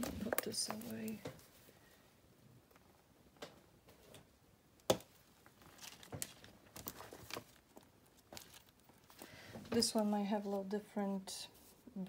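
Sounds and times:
paper and fabric rustling: 5.2 - 10.9.

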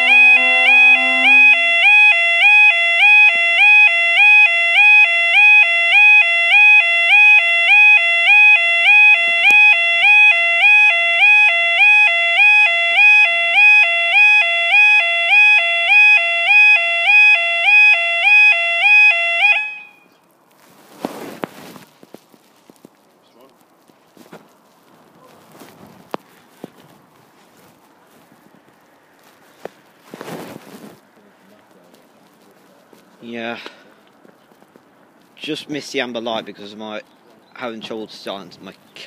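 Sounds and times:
level crossing alarm warbling: 0.0 - 20.0.

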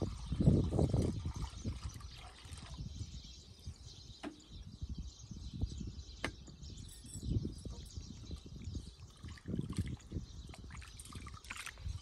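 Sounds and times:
water pouring into metal bowl: 0.0 - 2.9, 8.4 - 12.0
water sloshing: 8.9 - 12.0.

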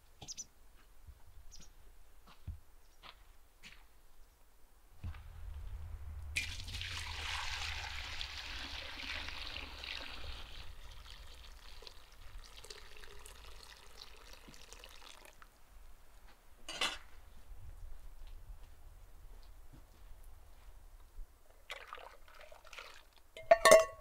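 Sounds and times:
liquid pouring and splashing: 6.4 - 15.5, 21.7 - 23.2.

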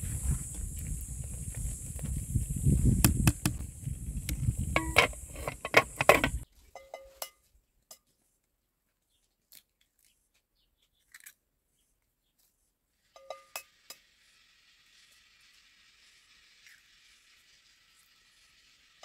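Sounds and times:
metal ladle scraping a pot: 4.7 - 6.4
ringing clank: 4.7 - 7.4.

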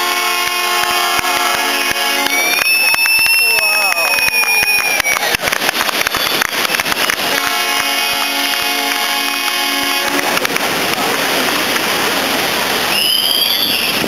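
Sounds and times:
horn blast: 0.0 - 2.7, 7.1 - 10.6
people clapping: 0.0 - 12.0.

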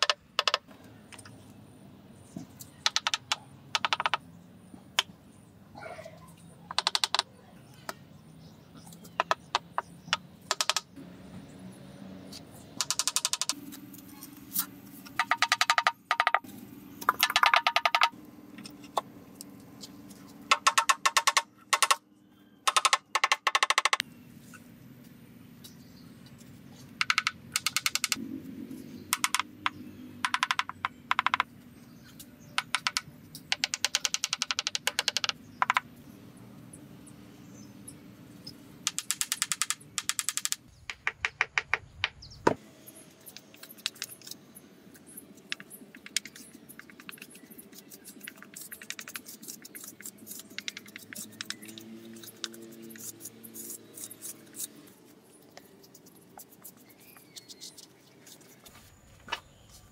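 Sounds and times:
wooden mallet tapping tiles: 0.0 - 0.6, 2.8 - 4.2, 6.7 - 7.3, 9.2 - 10.9, 12.8 - 13.6, 15.2 - 16.4, 17.0 - 18.2, 20.5 - 22.0, 22.7 - 24.0, 29.1 - 31.5, 32.6 - 35.8, 38.9 - 41.8.

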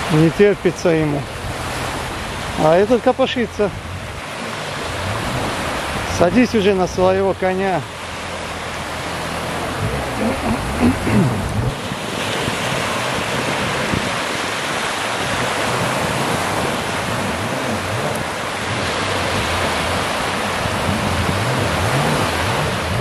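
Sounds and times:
waves breaking on beach: 0.0 - 23.0
wind buffeting microphone: 7.9 - 23.0.

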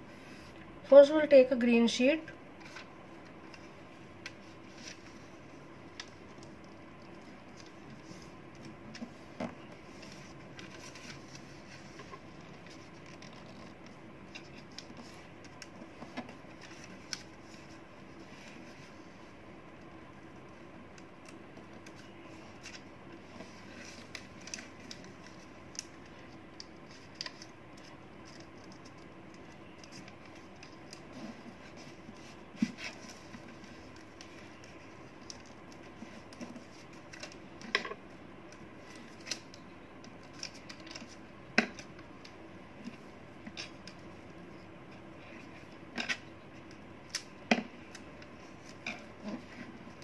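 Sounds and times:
faint steady hum: 0.0 - 50.0
paper being folded and creased: 3.5 - 19.3, 21.8 - 37.6.

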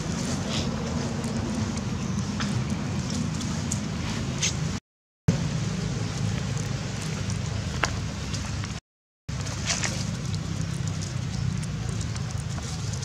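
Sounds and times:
faint ticks and rustles: 9.4 - 13.0.

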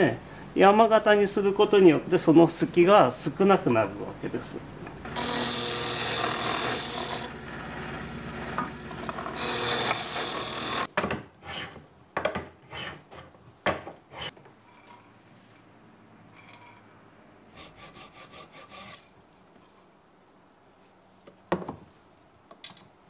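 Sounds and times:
drill press milling wood: 5.1 - 10.9
hand plane shaving wood: 5.1 - 11.8.

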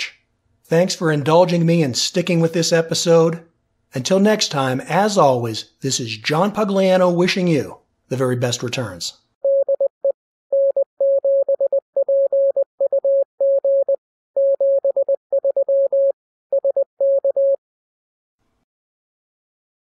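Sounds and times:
morse code beeps: 9.4 - 17.6.

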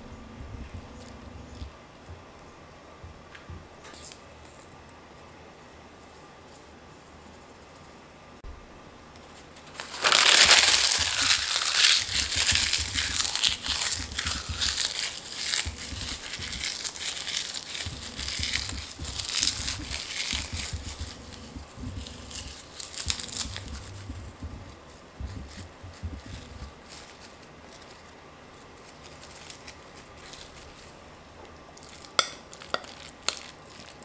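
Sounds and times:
seaweed sheets crackling: 9.2 - 31.1, 31.8 - 34.0.

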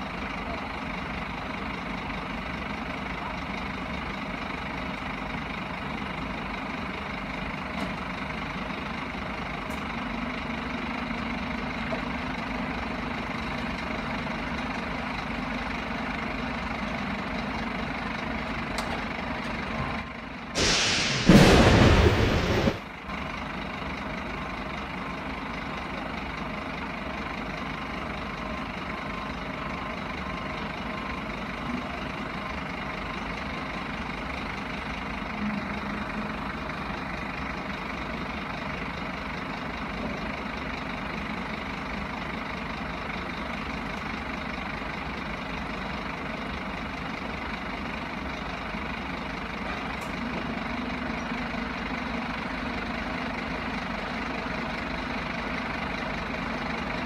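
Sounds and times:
diesel truck engine idling: 0.0 - 57.0
loud crash: 20.6 - 22.9.

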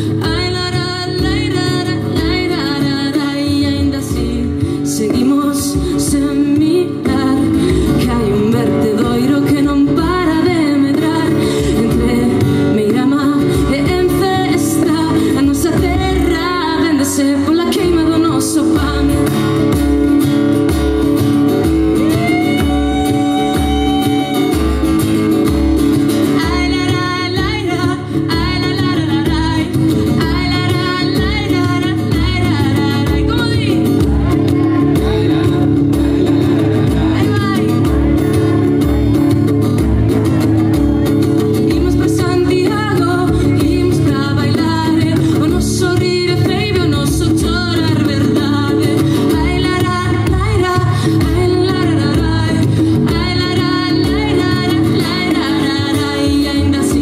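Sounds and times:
woman singing: 0.0 - 20.3, 21.2 - 57.0
strummed acoustic guitar: 0.0 - 57.0
frame drum beat: 17.8 - 57.0.

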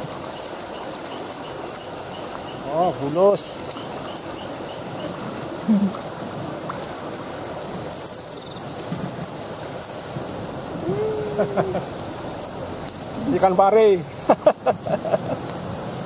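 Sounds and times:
insects buzzing: 0.0 - 16.0
person grunting: 10.8 - 11.8
drawn-out vocal ooh: 10.8 - 11.9.

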